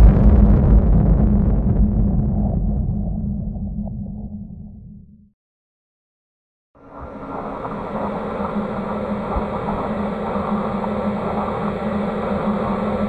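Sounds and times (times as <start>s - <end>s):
dark droning hum with hiss: 6.8s - 13.0s.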